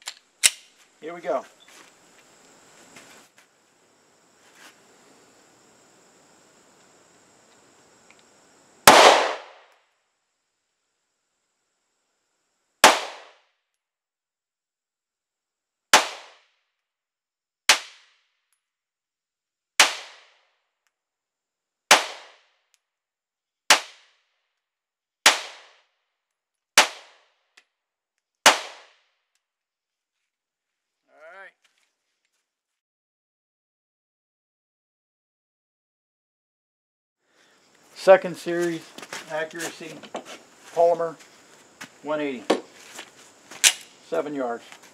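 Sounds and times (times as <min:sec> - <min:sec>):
pistol shots: 0:08.9 - 0:09.7, 0:12.8 - 0:13.4, 0:16.0 - 0:16.4, 0:21.9 - 0:22.4, 0:26.8 - 0:27.2, 0:28.5 - 0:29.0.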